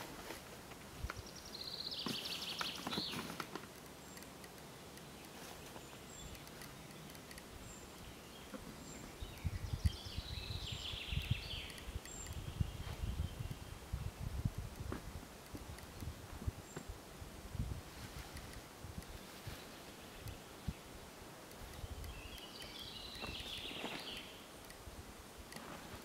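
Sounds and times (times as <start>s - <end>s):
songbird trilling: 4.9s - 13.7s, 21.6s - 24.5s.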